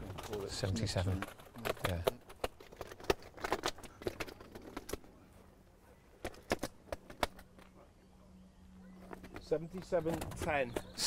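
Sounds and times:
fish clicking and tapping in sling: 1.1 - 5.1, 6.2 - 7.8.

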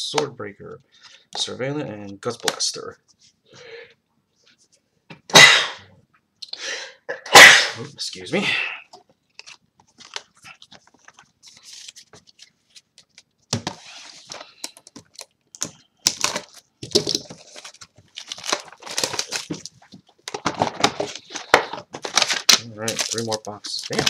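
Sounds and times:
sharp crinkles and rustles: 9.3 - 13.3, 14.0 - 24.0
trading card packaging torn open: 15.1 - 19.8, 21.0 - 24.0.

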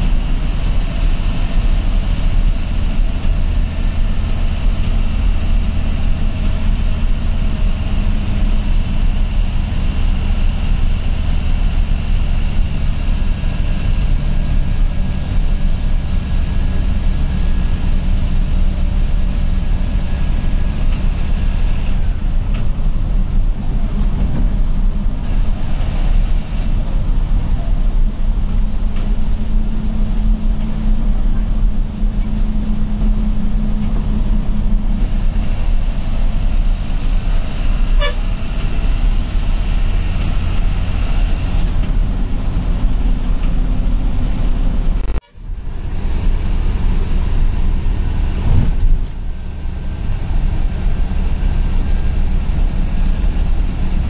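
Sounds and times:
bus engine and road noise: 0.0 - 54.0
horn honking: 37.9 - 38.4.

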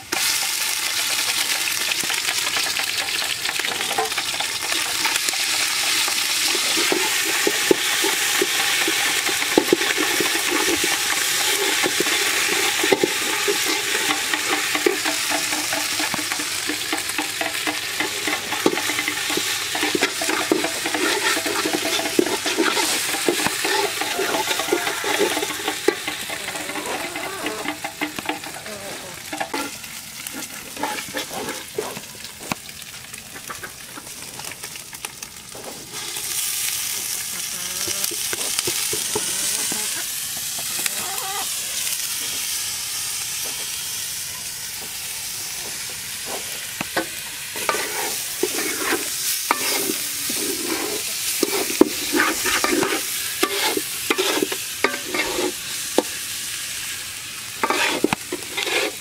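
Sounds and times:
onions sizzling in oil: 0.0 - 59.0
metal spoon scraping a pot: 5.8 - 29.8, 30.7 - 31.9, 47.6 - 56.1, 57.6 - 59.0.

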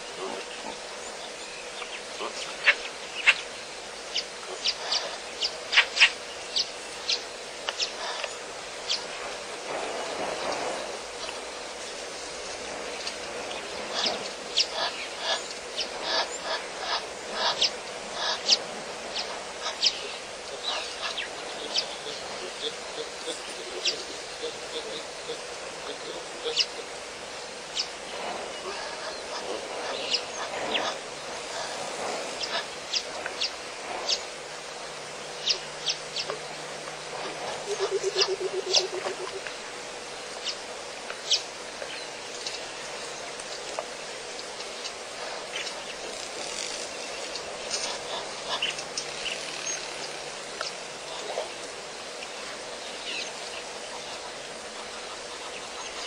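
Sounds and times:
birds chirping: 0.0 - 56.0
fast-pulsed bird call: 37.2 - 39.5.

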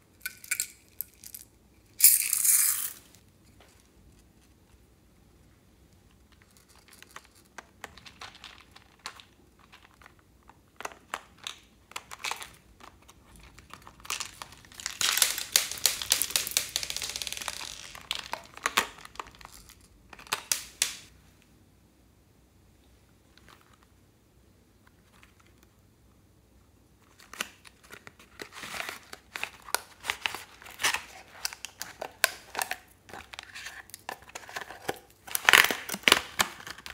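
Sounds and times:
plastic and tape crinkling: 6.3 - 21.1, 27.0 - 36.9.

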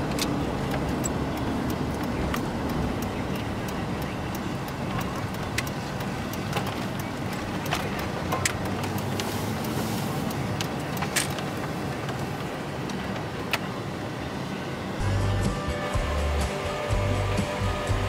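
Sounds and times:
sharp ticks: 0.0 - 12.2
truck engine drone: 0.0 - 18.0
tyres on road: 0.0 - 18.0
music: 15.0 - 18.0.

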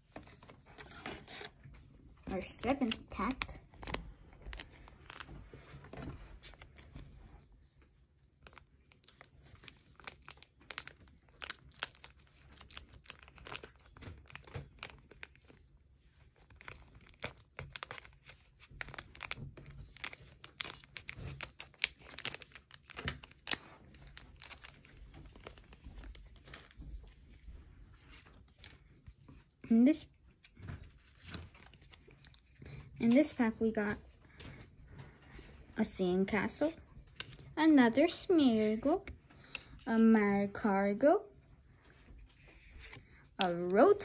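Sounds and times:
foil wrapper crinkling: 8.4 - 15.6, 16.2 - 27.4.

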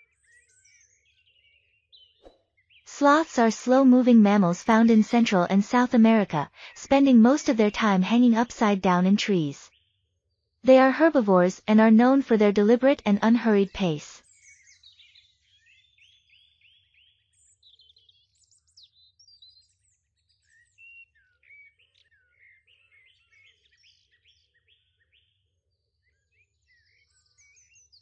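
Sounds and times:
birds chirping: 0.2 - 9.9.

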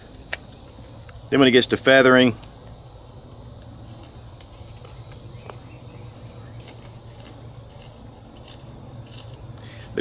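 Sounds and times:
steady low hum: 0.0 - 10.0
knife scraping wood: 3.8 - 10.0.

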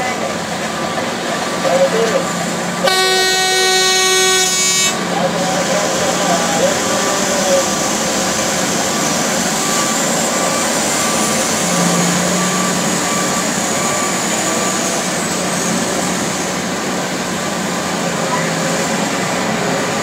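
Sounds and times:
large diesel engines running: 0.0 - 20.0
short beeps: 9.6 - 14.9.

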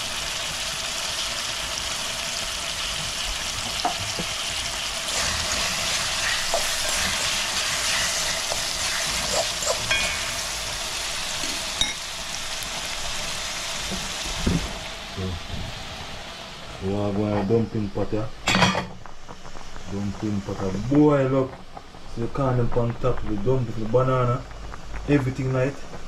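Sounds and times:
food sizzling in a frying pan: 0.0 - 26.0
spoon stirring a pan: 5.1 - 10.8.

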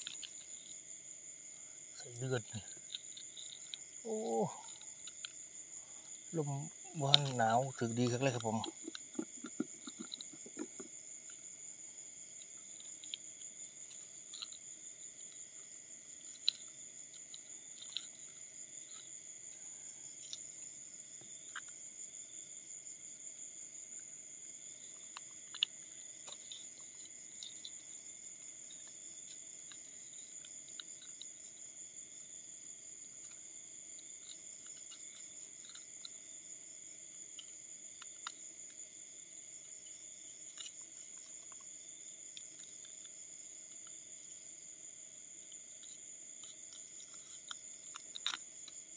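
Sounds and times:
night insects chorus: 0.0 - 48.9
faint clicks and rustles: 1.8 - 11.6.

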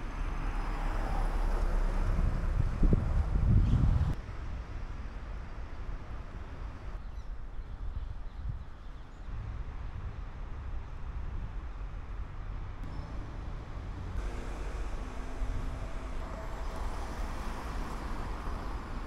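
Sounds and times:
road traffic: 0.0 - 19.0
wind on microphone: 1.7 - 4.2.

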